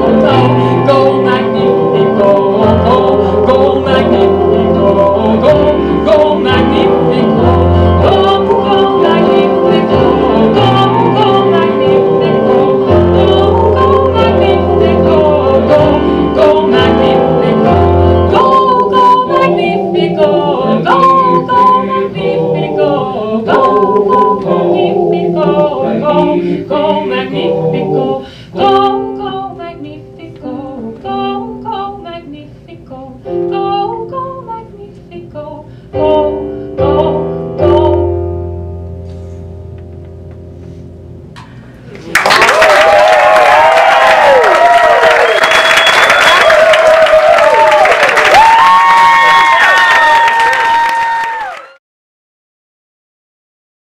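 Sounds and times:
digital piano: 0.0s - 32.3s, 33.2s - 41.9s
woman singing: 0.0s - 38.2s.

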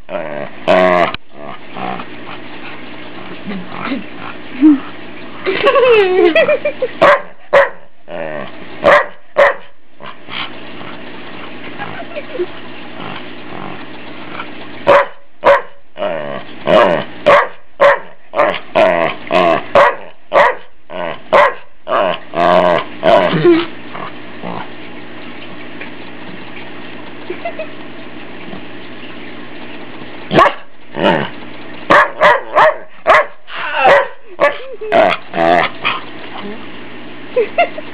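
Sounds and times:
dog barking and growling: 0.0s - 2.5s, 7.0s - 11.0s, 13.0s - 24.8s, 30.3s - 36.1s.

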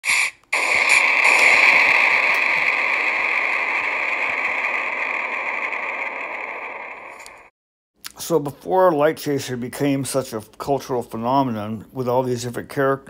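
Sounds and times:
brief burst: 0.0s - 7.5s
burning flames rushing and hissing: 0.6s - 7.5s
faint fire crackles: 0.6s - 7.5s.

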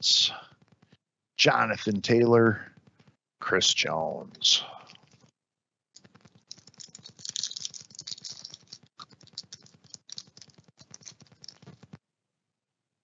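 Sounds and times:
foil wrapper crinkling: 6.0s - 12.0s.

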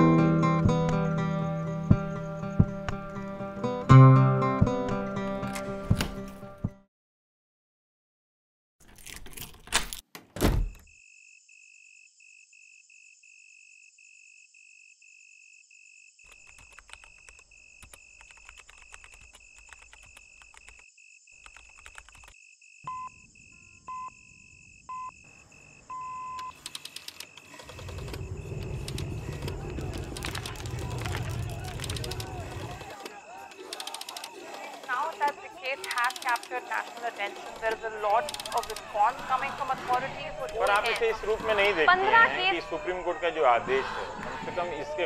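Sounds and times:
laptop keys typing: 16.3s - 22.4s, 26.4s - 41.1s
short beeps: 22.8s - 24.3s.

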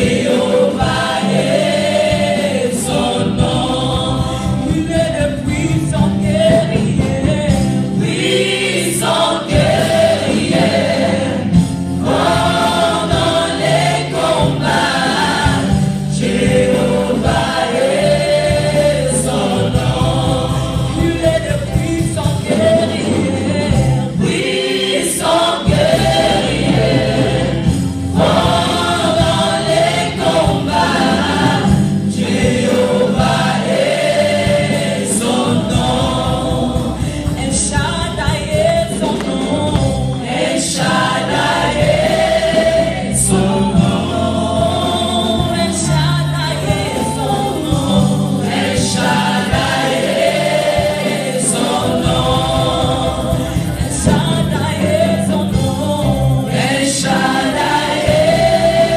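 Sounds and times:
gospel choir singing: 0.0s - 58.9s.

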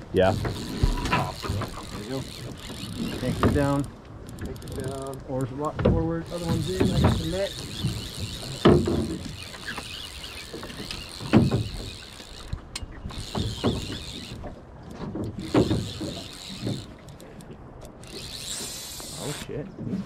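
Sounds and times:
fly reel ticking: 0.3s - 3.8s, 6.2s - 14.4s, 15.4s - 17.2s, 17.9s - 19.5s
dull knocks from rod and reel: 0.3s - 4.7s, 5.6s - 19.2s.

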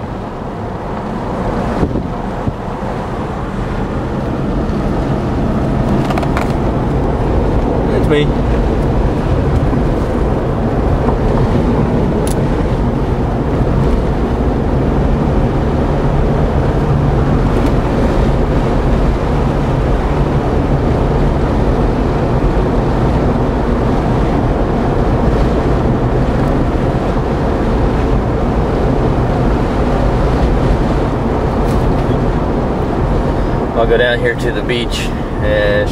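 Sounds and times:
car engine and tyre rumble: 0.0s - 35.9s
wind rushing over microphone: 0.0s - 35.9s.

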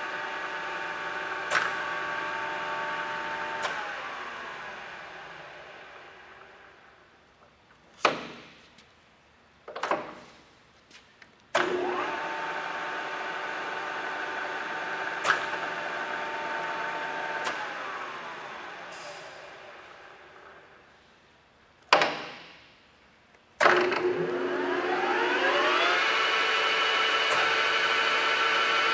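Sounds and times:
click: 1.5s - 1.8s, 17.4s - 17.6s
lathe spindle gear whine: 23.8s - 28.9s.

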